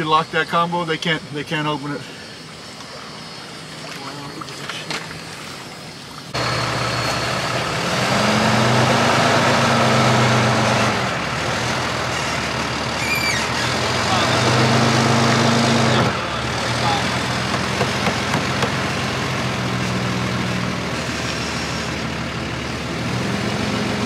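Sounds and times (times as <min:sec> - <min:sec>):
truck engine running: 0:05.2 - 0:24.0.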